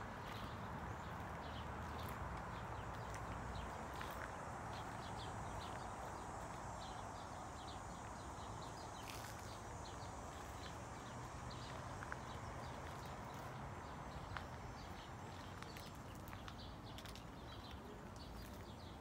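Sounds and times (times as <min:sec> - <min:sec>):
footsteps on gravel: 0:00.1 - 0:07.0, 0:09.0 - 0:18.8.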